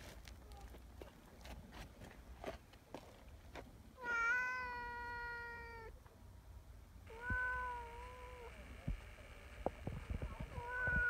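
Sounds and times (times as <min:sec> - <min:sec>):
cat meowing: 0:04.0 - 0:05.9, 0:07.1 - 0:08.5, 0:10.5 - 0:11.0.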